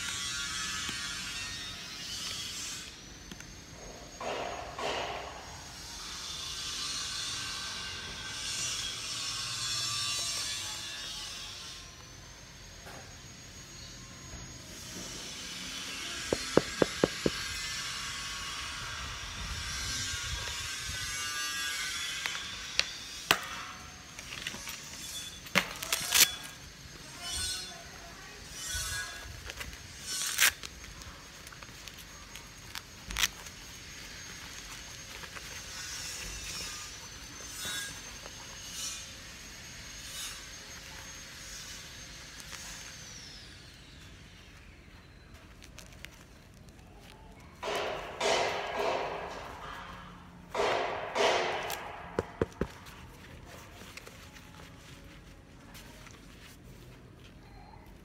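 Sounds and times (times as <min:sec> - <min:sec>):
knee pad fabric rustling: 0:16.3 - 0:17.4
fabric rubbing against microphone: 0:52.8 - 0:57.4.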